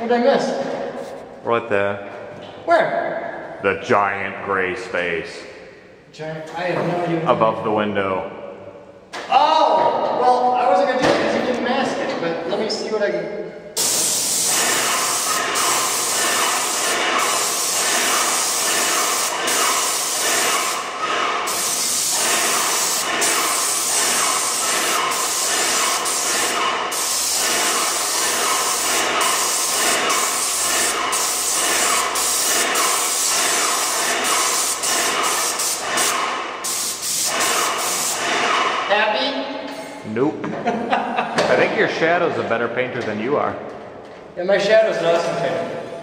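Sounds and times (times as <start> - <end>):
paint sprayer hissing: 13.8 - 38.8.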